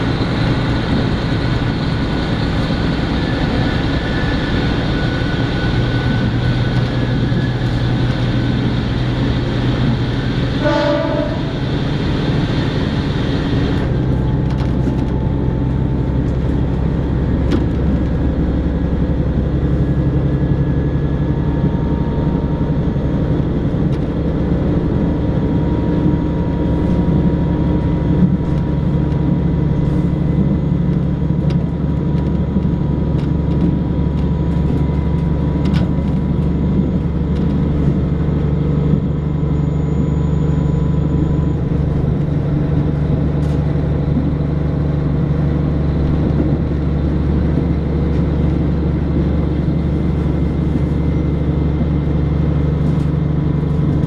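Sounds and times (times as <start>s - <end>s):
train engine and wheels rumbling: 0.0s - 54.0s
train horn blast: 10.5s - 11.8s.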